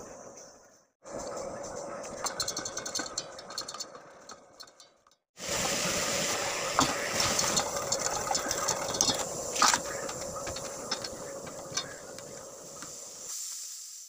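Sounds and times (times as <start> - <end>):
steady hiss: 5.4 - 14.0.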